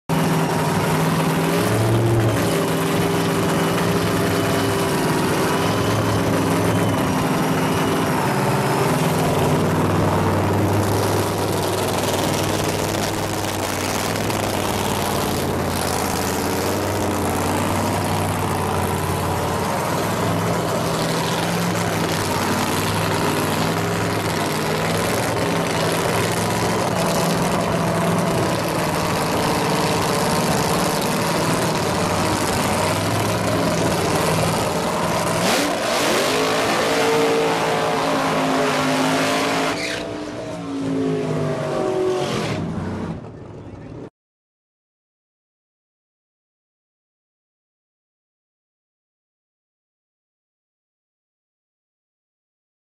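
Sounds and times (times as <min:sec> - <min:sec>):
race car engine idling: 0:00.2 - 0:35.4.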